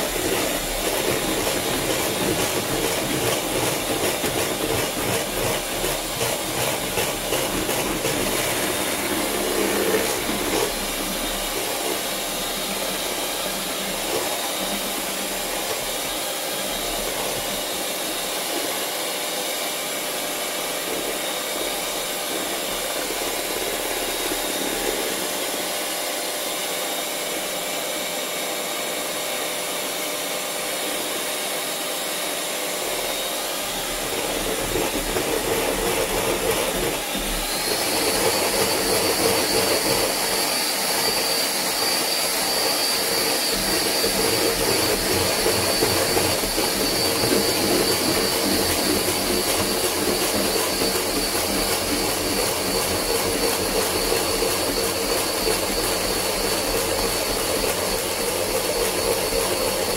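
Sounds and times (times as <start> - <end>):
electric hand mixer whining: 0.0 - 59.9.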